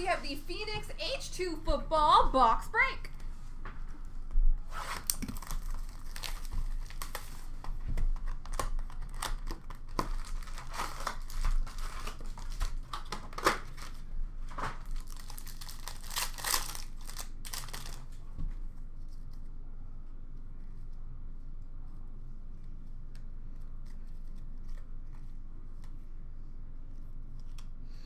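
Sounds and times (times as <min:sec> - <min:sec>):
card pack wrappers crinkling and tearing: 0:04.9 - 0:18.2.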